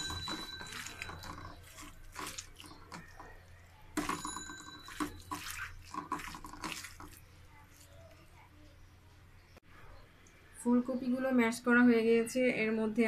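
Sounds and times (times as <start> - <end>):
wet squelches of mashing: 0.0 - 4.0, 4.8 - 8.8
ringing clink: 4.1 - 5.0.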